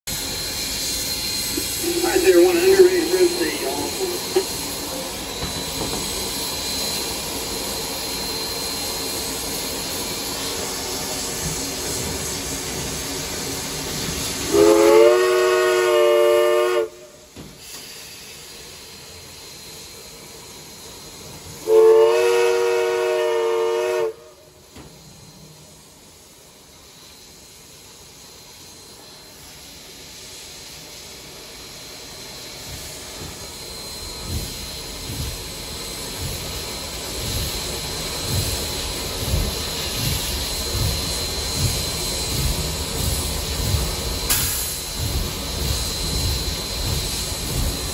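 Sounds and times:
steam hissing: 0.1 - 47.9
steam whistle blasts: 14.4 - 17.4, 21.6 - 24.6.

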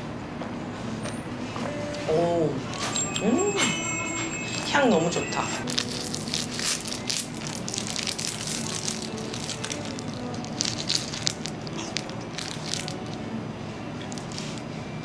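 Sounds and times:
crunching bites of wafer: 5.6 - 13.2
plastic wrapper crinkling: 5.6 - 13.3, 14.0 - 14.7.

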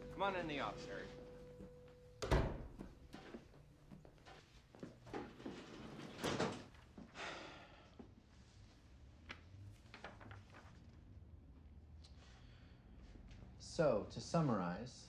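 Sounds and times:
door shutting with a thud: 2.2 - 3.0
papers rustling: 9.6 - 10.9.

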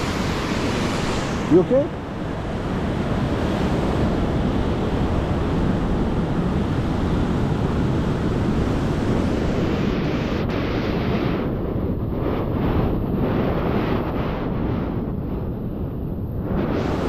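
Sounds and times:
ocean surf breaking: 0.0 - 11.4
wind buffeting microphone: 0.0 - 17.0.

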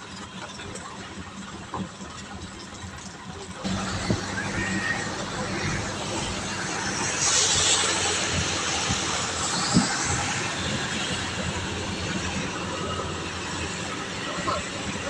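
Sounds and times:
vehicle engines: 0.0 - 15.0
tyres hissing through water: 3.7 - 15.0.

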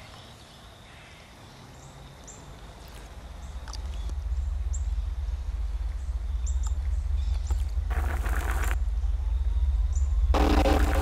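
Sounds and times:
deep low rumble: 3.4 - 11.0.

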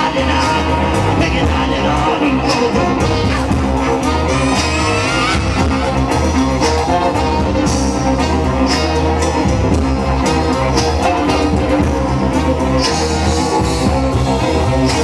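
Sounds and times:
live band playing fusion music: 0.0 - 15.0
trombone: 0.0 - 15.0
trumpet: 1.4 - 15.0.

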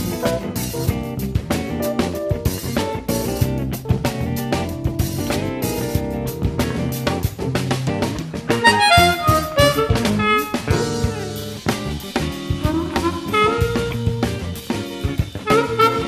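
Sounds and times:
backing track with drums: 0.0 - 16.0
harmonica solo: 8.5 - 11.7, 12.4 - 14.6, 15.4 - 16.0.

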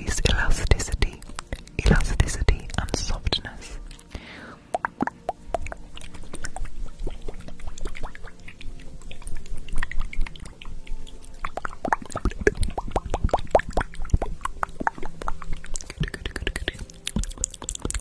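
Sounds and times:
wet sticky hand clicks: 0.2 - 3.4, 13.9 - 18.0.

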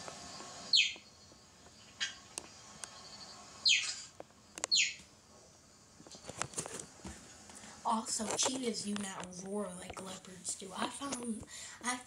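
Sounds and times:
cheetah chirping: 0.7 - 1.3, 3.6 - 5.0.

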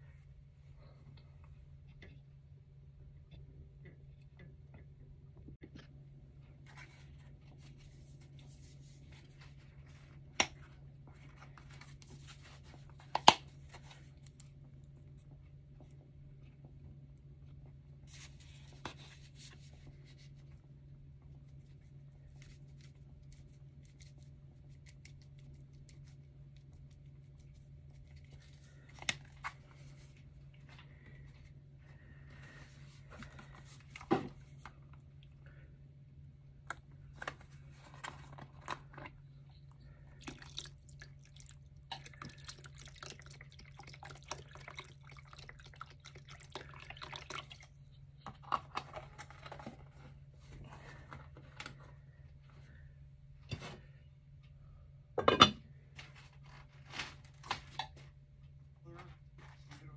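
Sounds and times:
steady low hum: 0.0 - 56.8
cookware being handled: 55.2 - 55.6.

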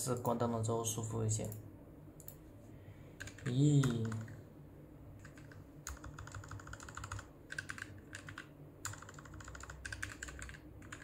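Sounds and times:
mechanical keyboard typing: 3.2 - 4.4, 5.2 - 11.0.

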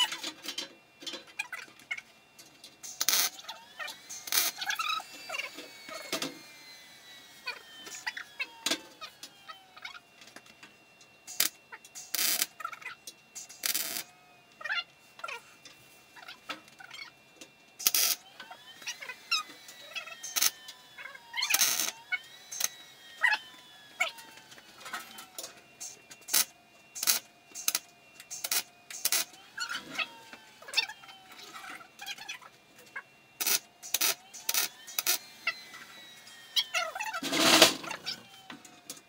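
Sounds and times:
welding arc crackling: 2.8 - 10.0, 11.2 - 14.2, 17.8 - 18.2, 18.8 - 23.4, 24.0 - 30.1, 33.4 - 38.3.

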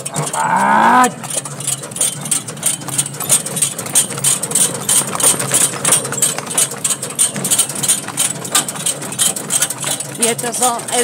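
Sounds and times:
cart rattling: 0.0 - 11.0
horse hooves clopping on gravel: 0.0 - 11.0.

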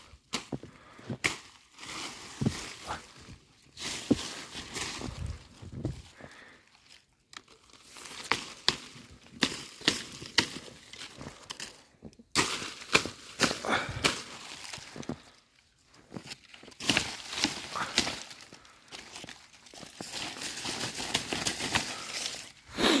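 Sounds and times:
leaves crackling and rustling: 0.0 - 23.0
stick clicking on branches: 1.2 - 3.1, 6.9 - 15.4, 16.2 - 22.6.

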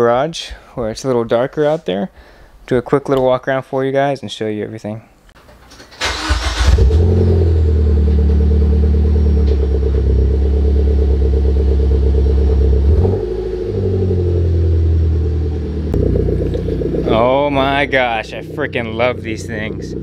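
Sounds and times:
car engine starting and idling: 5.8 - 20.0.

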